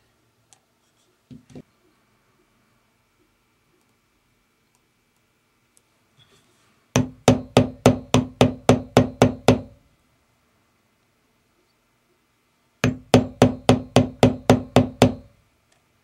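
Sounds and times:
mallet knocking on metal stamp: 12.8 - 15.3.

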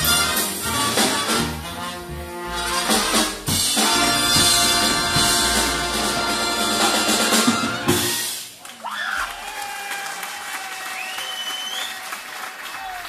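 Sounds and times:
band held chord with drum hits: 0.0 - 8.4
big band jazz: 0.0 - 8.6.

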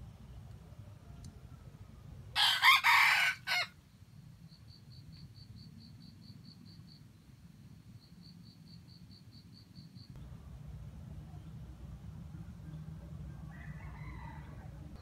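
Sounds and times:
rooster crowing: 2.4 - 3.8, 13.3 - 15.0.

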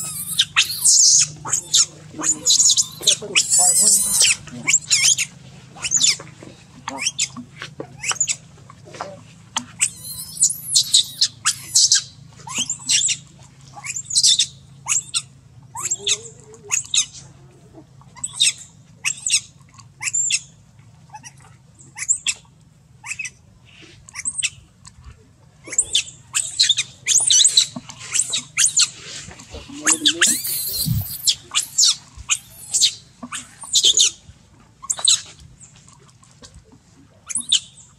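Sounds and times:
baby monkey squealing: 0.0 - 6.2, 6.9 - 7.4, 9.8 - 13.2, 13.8 - 17.1, 18.2 - 19.4, 20.0 - 20.5, 22.0 - 22.4, 23.0 - 23.4, 24.1 - 24.6, 25.6 - 34.2, 34.8 - 35.3, 37.3 - 37.7.

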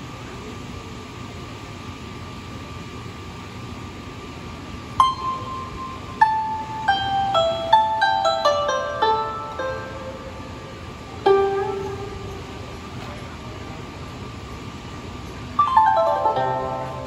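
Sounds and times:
steady background hum: 0.0 - 17.0
plucked string melody: 5.0 - 13.2, 15.6 - 17.0.

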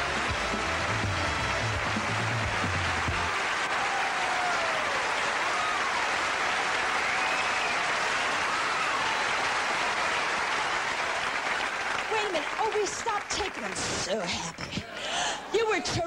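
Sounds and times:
cheering calls: 0.0 - 12.9
audience applauding: 0.0 - 15.8.

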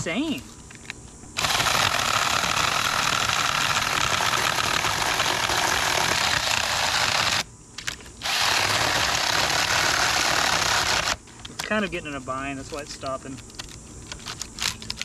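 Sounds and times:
mini chainsaw cutting wood: 1.4 - 7.5, 8.2 - 11.2.

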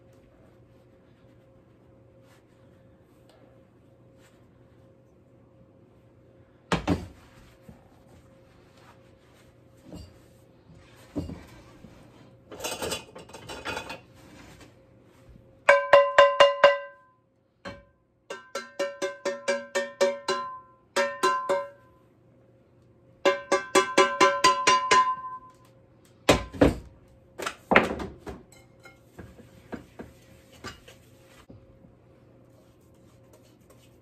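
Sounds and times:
wooden spoon knocking mixing bowl: 15.7 - 17.0, 17.7 - 21.8, 23.2 - 25.4.

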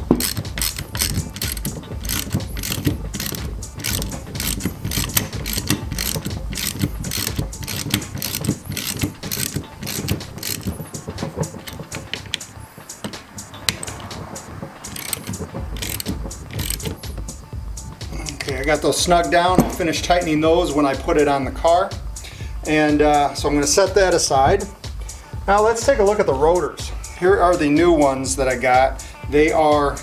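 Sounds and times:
ratchet wrench clicking: 0.0 - 18.5.

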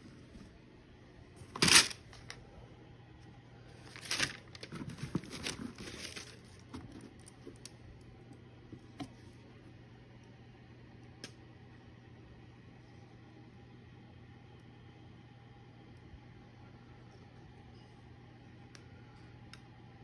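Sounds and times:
wrapping paper rustling and crinkling: 1.5 - 2.4, 3.7 - 7.7.

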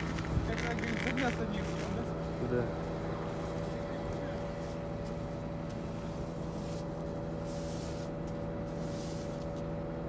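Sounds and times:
engine humming steadily: 0.0 - 10.0
short hissing rustles: 6.3 - 9.6.

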